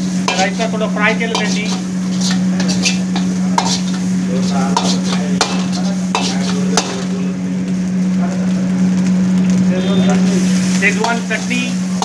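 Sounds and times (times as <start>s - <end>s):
spatula scraping wok: 0.0s - 7.2s, 10.4s - 12.0s
low hum: 0.0s - 12.0s
rice sizzling in a wok: 0.0s - 12.0s
spatula clanking on wok: 0.2s - 7.1s.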